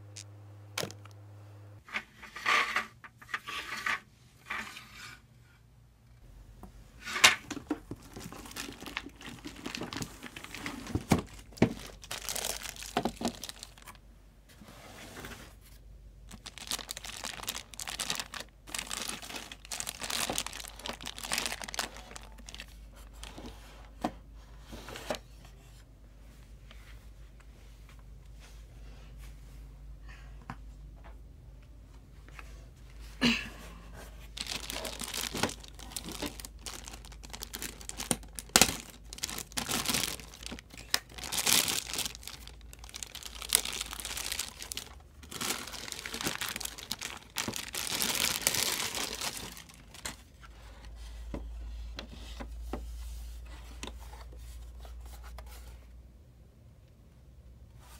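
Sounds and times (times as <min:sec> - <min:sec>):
plastic bag crinkling: 0:07.5 - 0:14.0, 0:16.2 - 0:23.3, 0:34.2 - 0:50.4.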